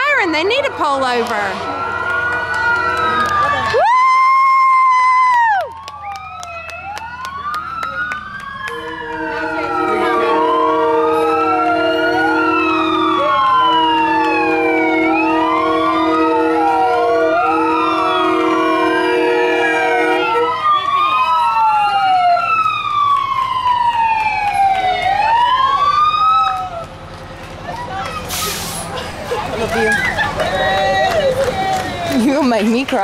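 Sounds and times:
fire truck siren wailing: 0.0s - 32.8s
truck horn chord: 8.7s - 13.3s, 14.2s - 20.5s.

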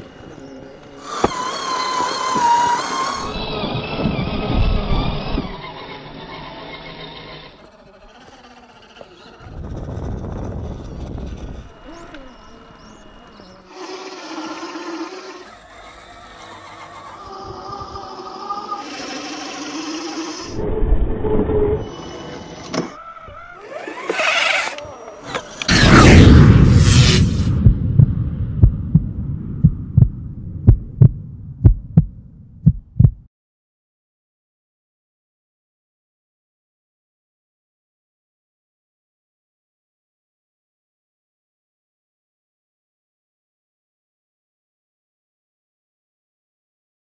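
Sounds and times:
small electric motor whining: 0.0s - 20.6s, 21.8s - 25.8s
low drone: 20.3s - 22.7s, 24.7s - 32.5s
low rumble: 20.5s - 22.0s, 25.7s - 33.2s
heartbeat-like double thump: 26.3s - 33.3s.

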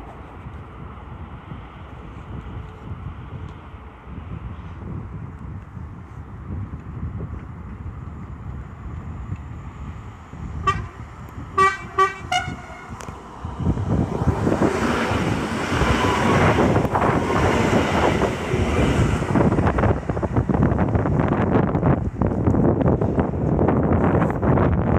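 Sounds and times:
train rumbling past: 7.6s - 24.6s
train horn toots: 10.6s - 11.0s, 11.6s - 13.0s.

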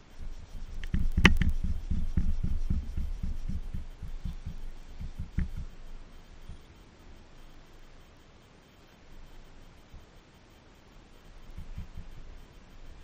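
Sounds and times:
scrubbing exhaust pipe: 0.0s - 6.6s.

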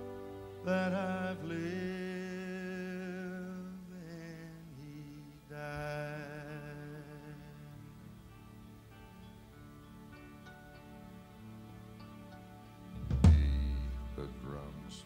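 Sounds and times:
country band backing: 0.0s - 2.7s, 8.3s - 15.0s
man singing wordless notes: 0.5s - 8.5s, 13.0s - 15.0s.

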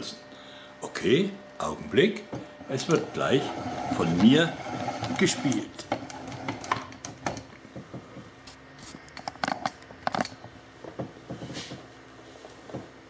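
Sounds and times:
faint steady hum: 0.0s - 13.0s
handling knocks and rustles: 7.2s - 13.0s.

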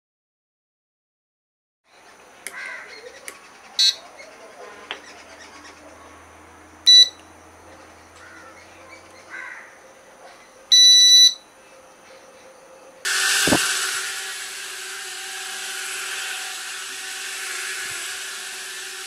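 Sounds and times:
electronic beeps: 6.9s - 7.2s, 10.7s - 11.5s
quadcopter drone propellers whirring: 13.0s - 19.0s.

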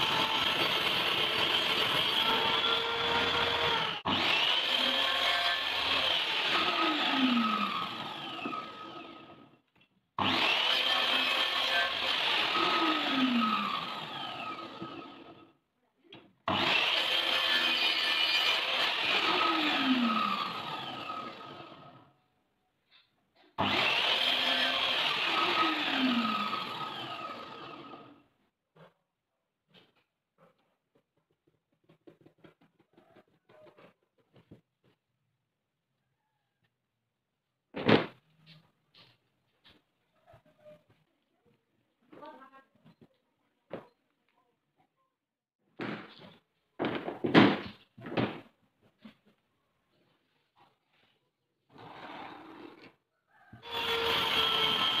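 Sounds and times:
circular saw whining: 0.0s - 9.4s, 10.2s - 15.4s, 16.5s - 22.0s, 23.6s - 28.2s, 53.6s - 55.0s
miter saw spinning down: 16.5s - 21.9s, 23.6s - 28.2s.

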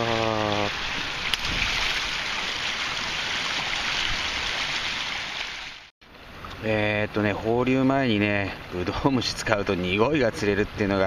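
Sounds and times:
water rushing through channel: 0.0s - 6.6s.

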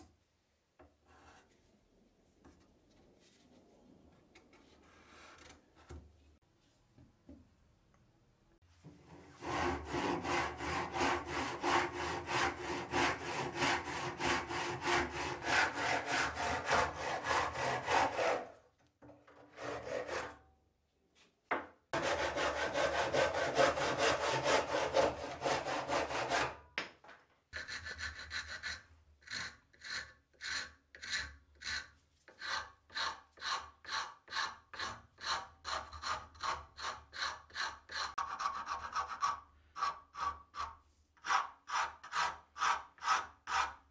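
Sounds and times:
hand saw cutting wood: 9.3s - 18.6s, 19.4s - 20.4s, 22.0s - 26.6s, 27.6s - 43.8s
file rasping wood: 9.4s - 18.6s, 19.4s - 20.4s, 22.0s - 26.6s, 27.6s - 43.9s.

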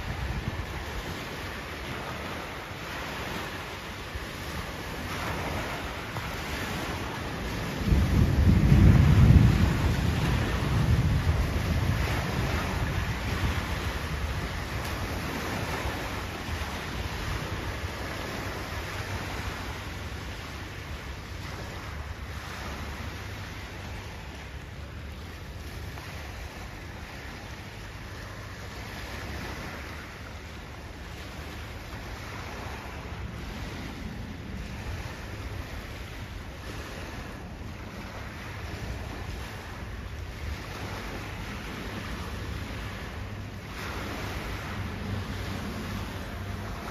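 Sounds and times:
river water rushing: 0.0s - 46.9s
wind buffeting microphone: 0.0s - 46.9s.

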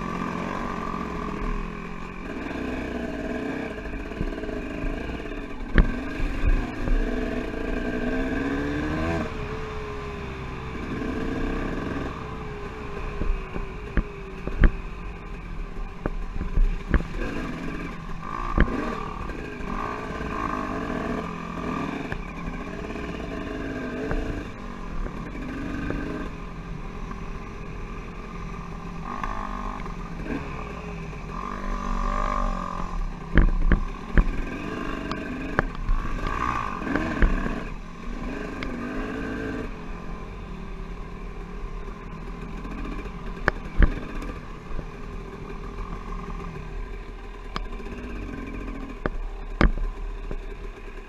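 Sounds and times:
dirt bike engine running: 0.0s - 51.0s.

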